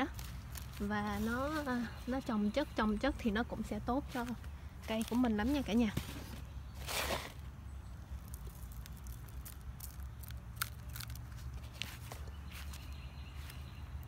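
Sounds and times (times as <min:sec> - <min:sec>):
eggshell crumbling crackles: 0:08.0 - 0:13.5.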